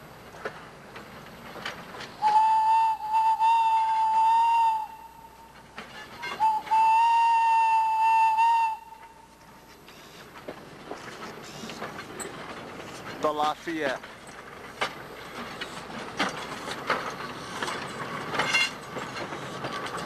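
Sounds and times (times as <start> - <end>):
steam locomotive whistle blasts: 2.2 - 5.4, 6.2 - 9.2.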